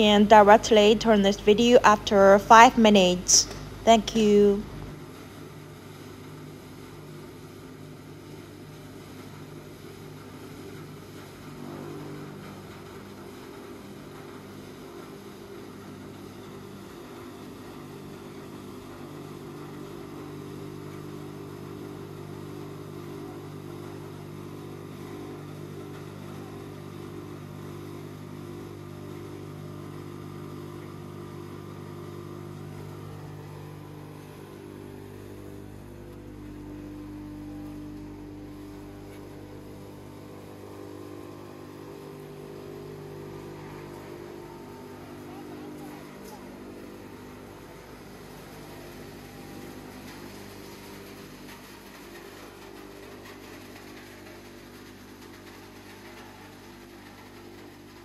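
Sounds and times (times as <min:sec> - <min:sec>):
wood crusher crushing wood: 0:32.6 - 0:58.0.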